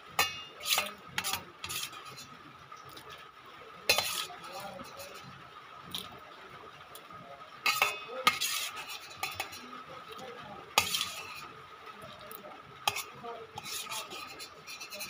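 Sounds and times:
cutlery clinking on a plate: 7.7s - 9.6s, 10.8s - 11.4s.

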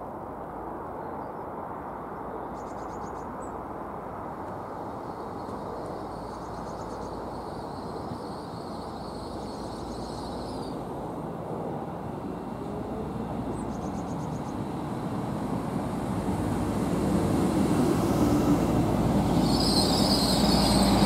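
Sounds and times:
train engines and wheels rumbling: 0.0s - 21.0s
small birds chirping: 5.3s - 10.9s, 13.4s - 14.7s.

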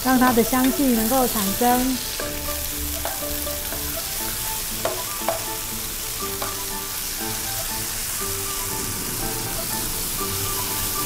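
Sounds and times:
food sizzling in oil: 0.0s - 11.0s
spatula knocking against pan: 2.9s - 4.0s, 4.8s - 5.6s, 6.3s - 6.7s.

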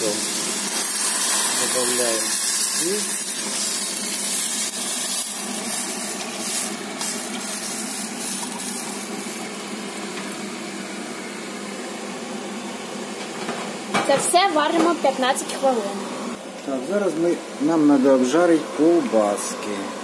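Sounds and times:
broth pouring into hot pot: 0.0s - 9.4s.

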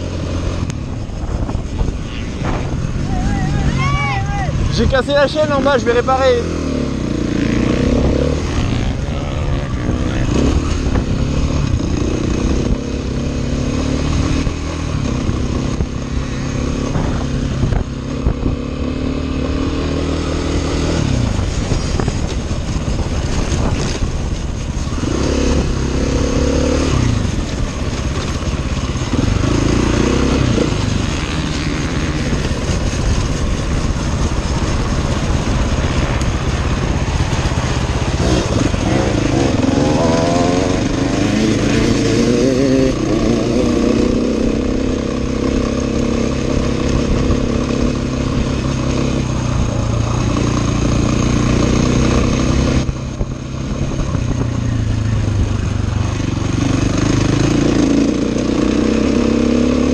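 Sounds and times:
dirt bike engine revving: 1.8s - 55.1s, 56.0s - 59.9s.

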